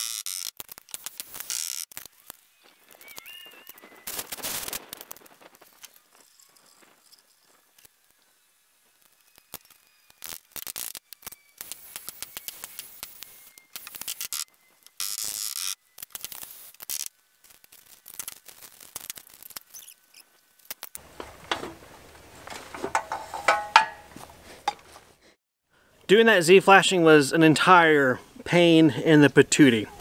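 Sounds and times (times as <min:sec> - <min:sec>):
sheet metal scraping: 0:22.5 - 0:24.1.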